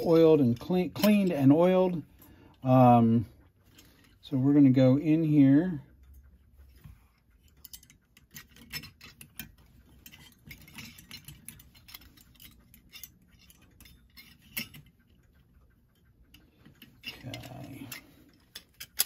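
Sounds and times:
small metal parts clicking: 0:07.3 - 0:15.3, 0:16.0 - 0:19.0.

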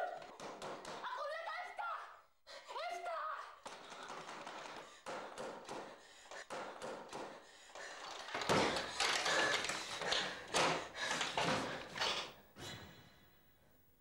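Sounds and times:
footsteps on hard floor: 0:07.2 - 0:12.3.

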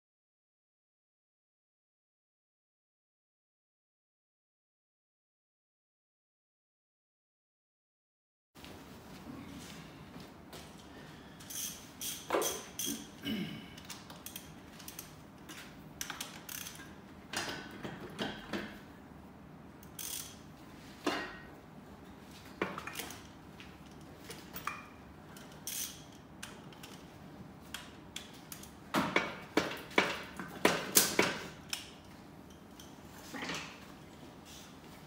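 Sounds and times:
ratchet wrench clicking: 0:11.5 - 0:13.0, 0:14.2 - 0:15.2, 0:16.0 - 0:16.9, 0:19.8 - 0:20.4, 0:25.4 - 0:27.0.

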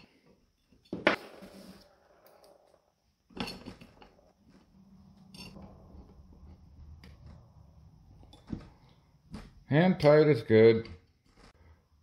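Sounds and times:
metallic clinks and scraping: 0:02.2 - 0:06.6.

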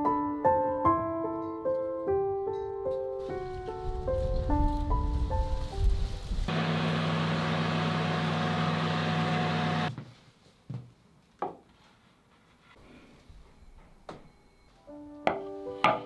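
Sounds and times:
oven fan humming whir: 0:06.5 - 0:09.9.

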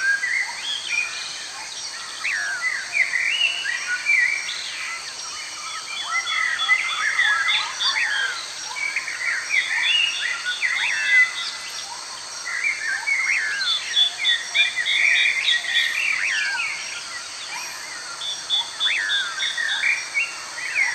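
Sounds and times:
birds chirping and whistling: 0:05.6 - 0:11.6.

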